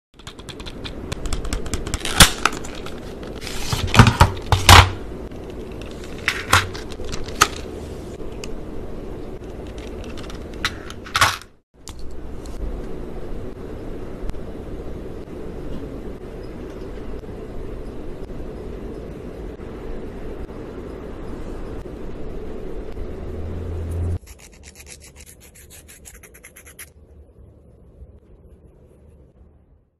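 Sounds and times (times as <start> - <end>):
nail file rasping on fingernail: 24.2 - 26.9.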